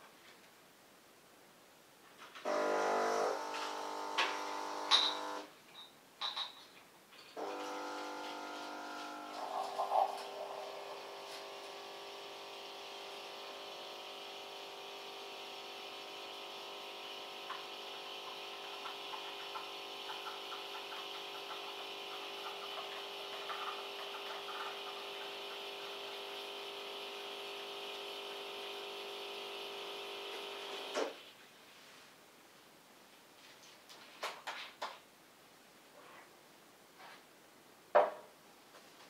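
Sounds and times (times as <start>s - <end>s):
espresso machine pump humming: 2.5s - 5.5s, 7.4s - 31.2s.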